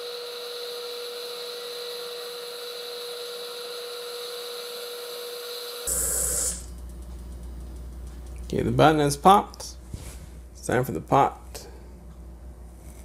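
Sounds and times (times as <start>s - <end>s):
pressure cooker venting steam: 0.0s - 7.1s
float valve popping up: 5.9s - 6.9s.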